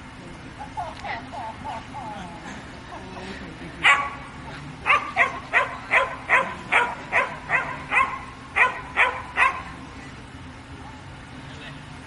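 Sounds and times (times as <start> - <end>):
dog barking: 3.8 - 4.2, 4.8 - 9.7.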